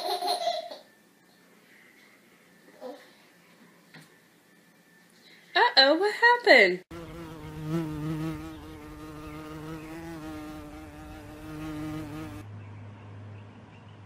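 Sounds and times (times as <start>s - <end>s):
flying insect buzzing: 6.9s - 12.4s.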